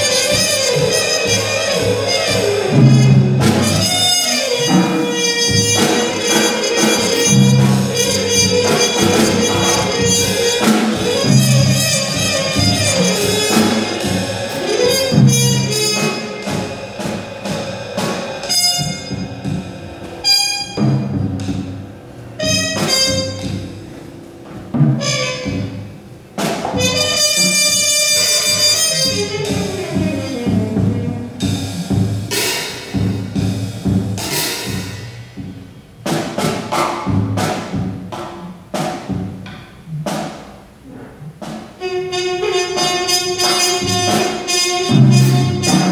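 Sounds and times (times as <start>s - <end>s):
trumpet bending notes: 0.0s - 32.5s, 40.8s - 45.9s
drum and cymbal hits: 0.0s - 45.9s.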